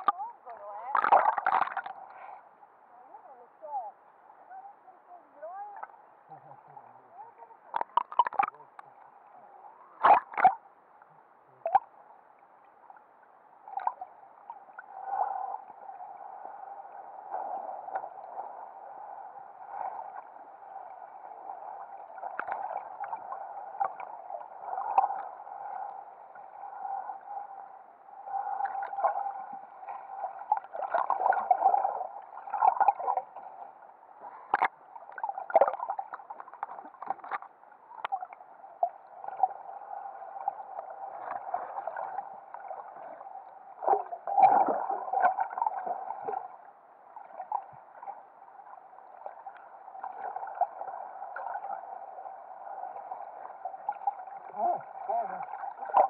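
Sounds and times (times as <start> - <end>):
underwater gurgling and sloshing: 0.0 - 56.0.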